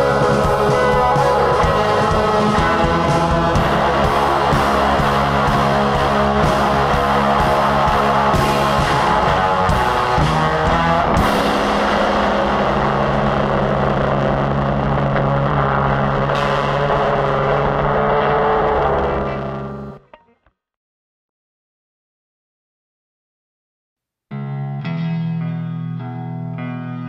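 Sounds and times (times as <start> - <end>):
cymbal crashes: 0.0 - 17.6
instrumental rock music: 0.0 - 20.4, 24.3 - 27.0.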